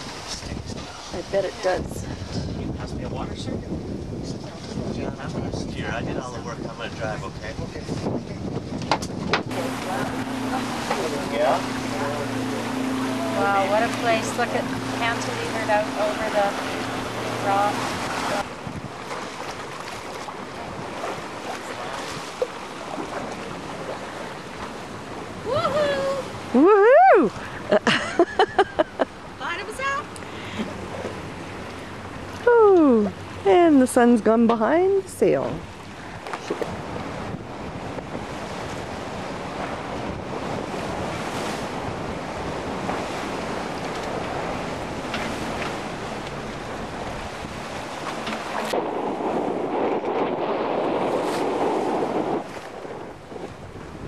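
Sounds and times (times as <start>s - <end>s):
water rushing along hull: 0.0s - 54.0s
wind buffeting microphone: 0.0s - 54.0s.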